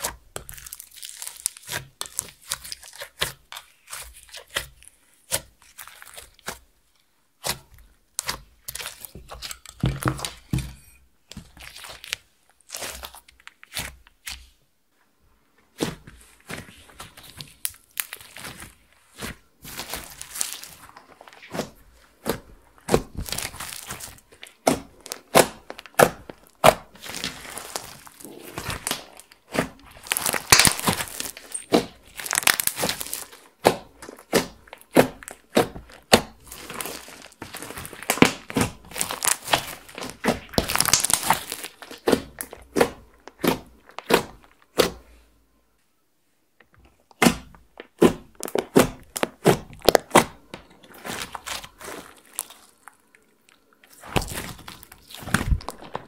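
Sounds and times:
slime clicking and popping: 0:22.9 - 0:44.9.

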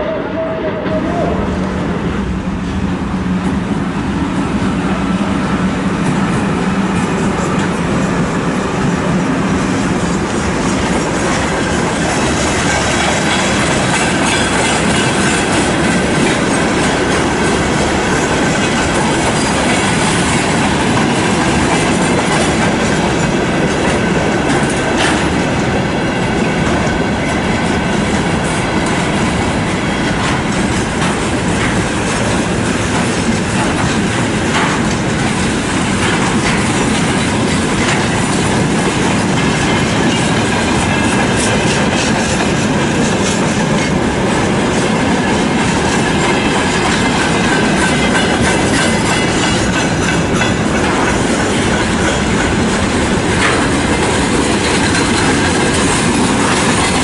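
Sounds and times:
freight train rumbling past: 0:00.0 - 0:57.0
wheels clattering over rail joints: 0:09.6 - 0:57.0.

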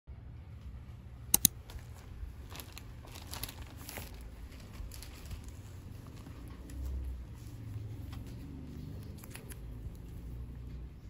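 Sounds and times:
sharp clicks: 0:01.3 - 0:01.8
plastic bag crinkling: 0:01.7 - 0:07.6.

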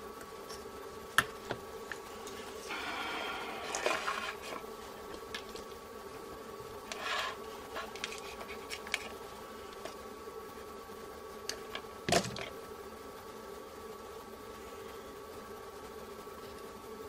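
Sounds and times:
faint hum: 0:00.0 - 0:17.0
wire rubbing rustle: 0:01.8 - 0:05.8, 0:06.6 - 0:10.1.

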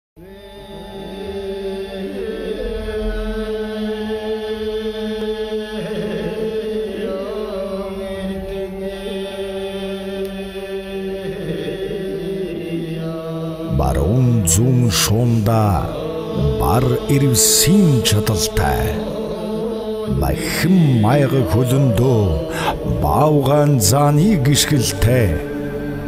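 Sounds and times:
low steady drone: 0:13.6 - 0:26.0.

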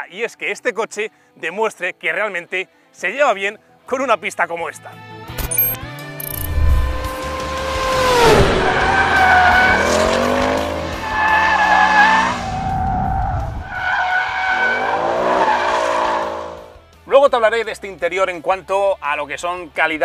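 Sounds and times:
car engine accelerating hard: 0:06.5 - 0:16.8.

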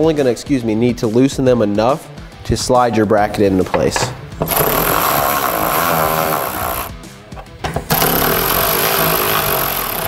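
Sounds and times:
cordless electric ratchet running: 0:04.4 - 0:07.0, 0:07.8 - 0:10.0.

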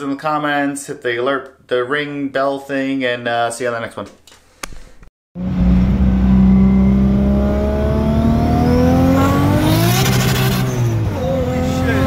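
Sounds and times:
car engine accelerating: 0:05.4 - 0:12.0
high turbo whine: 0:05.4 - 0:12.0.

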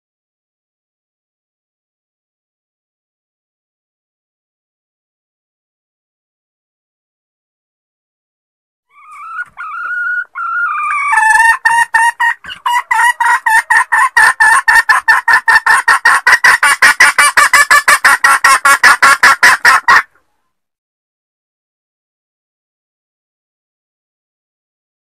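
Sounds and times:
hen calling and clucking: 0:08.9 - 0:20.4.

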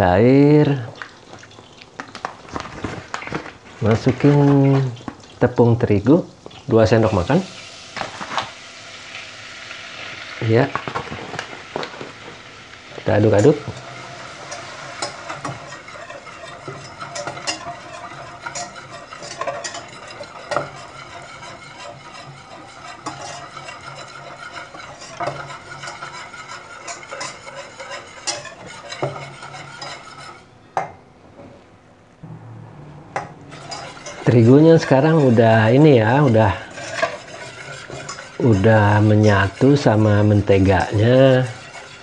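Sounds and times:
butter sizzling: 0:00.4 - 0:30.5, 0:33.2 - 0:42.0
whisk scraping a metal saucepan: 0:13.0 - 0:30.5, 0:32.9 - 0:42.0.

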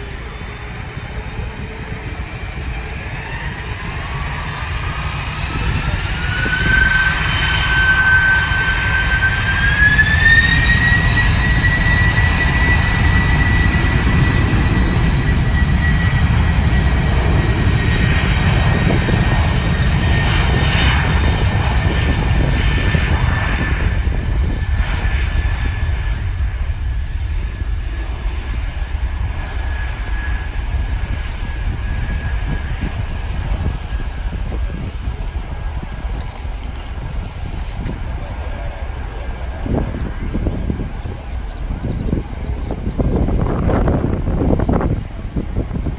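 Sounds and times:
jet engines whining: 0:00.0 - 0:45.9.

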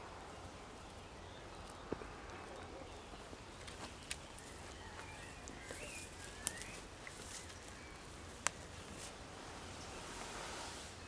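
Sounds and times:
faint bird chirps: 0:00.2 - 0:08.8
soft rustle: 0:01.8 - 0:11.0.

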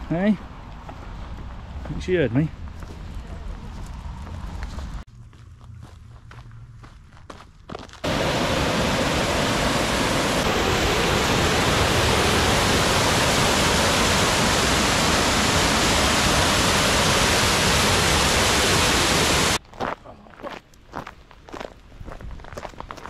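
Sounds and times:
waterfall rushing: 0:08.0 - 0:19.6.

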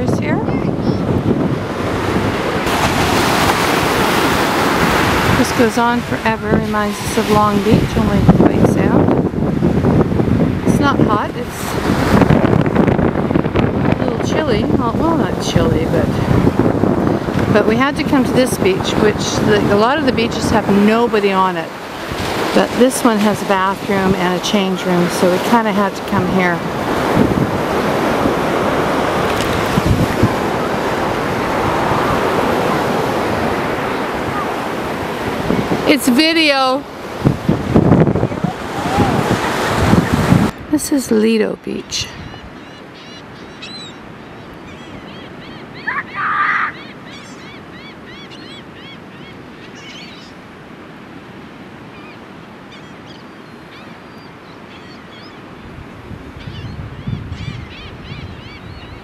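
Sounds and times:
ocean surf washing onto beach: 0:00.0 - 0:43.0
wind buffeting microphone: 0:00.0 - 0:49.3, 0:52.8 - 0:59.0
birds chirping: 0:37.9 - 0:50.6, 0:51.6 - 0:59.0
bird squawk: 0:42.1 - 0:50.4.

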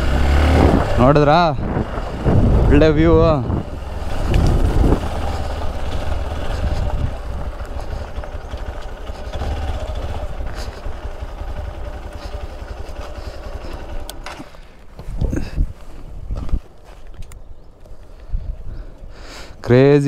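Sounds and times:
wind rumbling on microphone: 0:00.0 - 0:14.1, 0:14.9 - 0:19.0
motorcycle engine running: 0:00.0 - 0:15.4.

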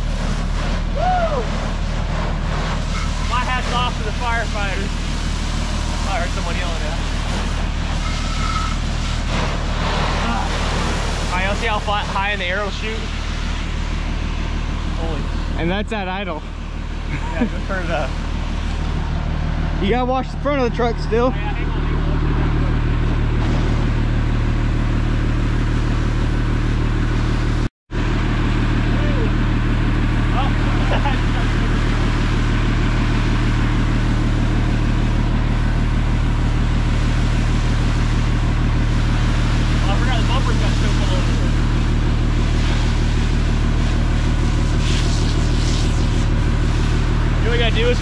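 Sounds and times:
high-pressure water jet hissing: 0:00.0 - 0:14.0, 0:30.3 - 0:48.0
fire truck engine running: 0:00.0 - 0:48.0.

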